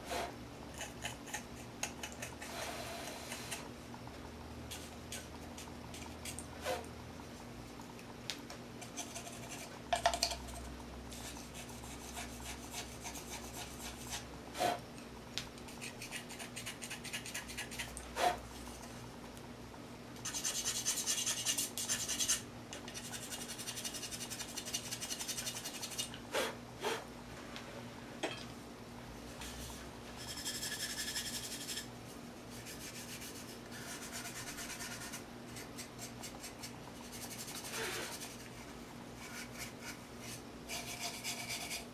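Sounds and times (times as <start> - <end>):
scratching on clay mug: 8.8 - 10.6, 30.2 - 31.9, 39.2 - 41.9.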